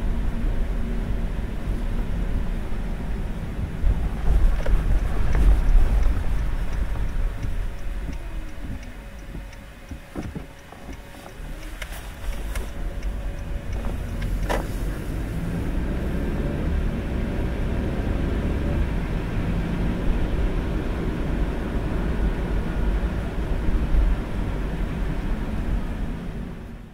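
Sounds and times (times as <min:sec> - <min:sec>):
car tyres and engine rumbling: 0:00.0 - 0:26.9.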